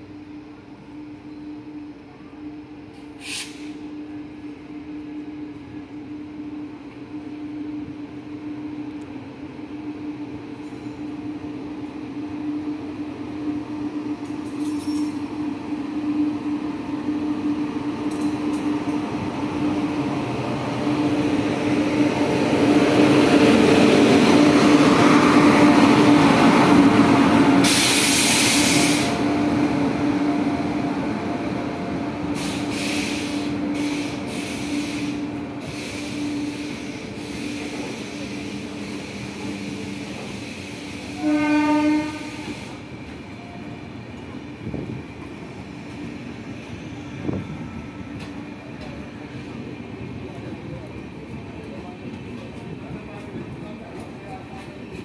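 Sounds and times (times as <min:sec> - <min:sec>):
train passing: 0:00.0 - 0:55.0
short hiss: 0:03.2 - 0:03.8.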